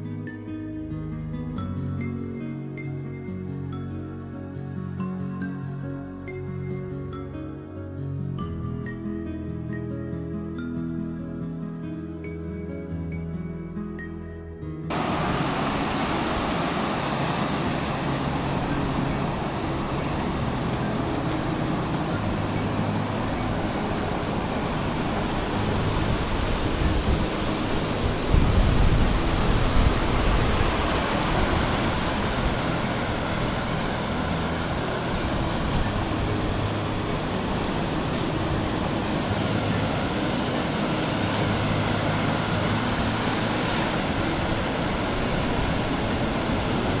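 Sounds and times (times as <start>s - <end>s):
ocean surf washing on beach: 14.9s - 47.0s.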